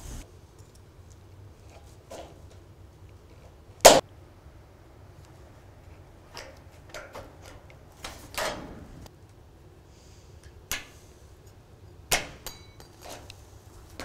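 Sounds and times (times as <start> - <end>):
metallic ring: 12.4 - 13.0.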